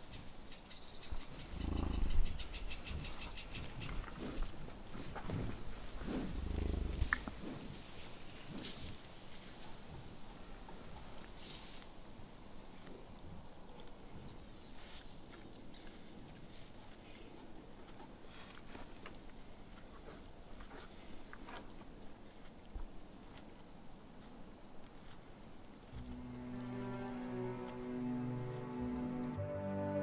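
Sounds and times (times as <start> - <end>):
bison grunting: 1.4 - 2.5, 5.2 - 8.8.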